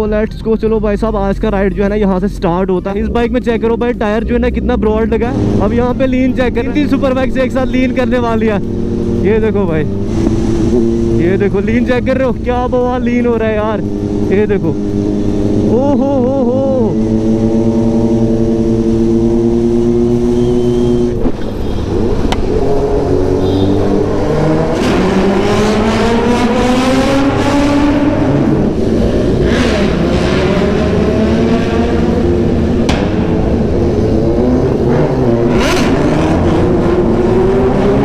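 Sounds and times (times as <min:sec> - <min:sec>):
motorcycle engines accelerating: 0:00.0 - 0:38.0
sharp cracks: 0:32.8 - 0:33.8.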